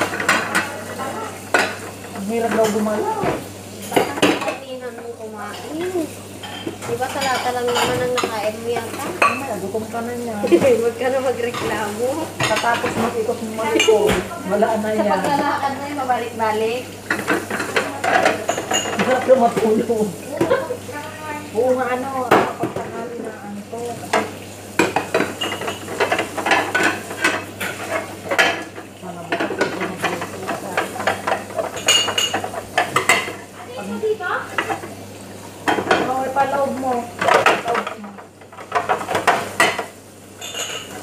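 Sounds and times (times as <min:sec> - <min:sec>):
plates clinking: 0:00.0 - 0:09.6, 0:17.0 - 0:20.9, 0:24.1 - 0:33.4, 0:35.6 - 0:36.2, 0:37.1 - 0:41.0
background talk: 0:06.8 - 0:24.2.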